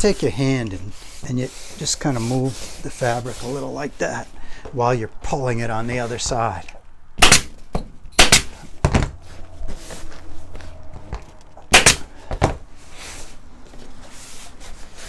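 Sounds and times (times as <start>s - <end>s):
pneumatic staple gun firing: 7.2s - 7.6s, 8.2s - 8.5s, 11.7s - 12.1s.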